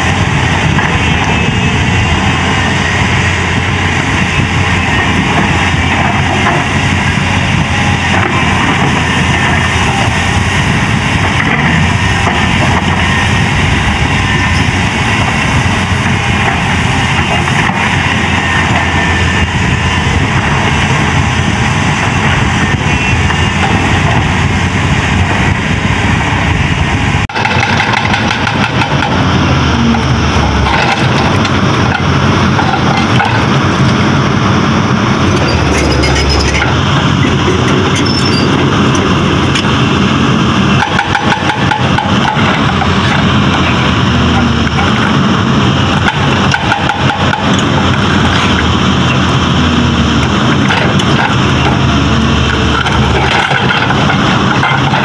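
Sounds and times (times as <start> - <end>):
excavator diesel engine running: 0.0 - 55.0
rattly machine sound: 27.3 - 33.9, 35.1 - 39.8, 40.7 - 45.2, 45.8 - 49.3, 50.2 - 55.0.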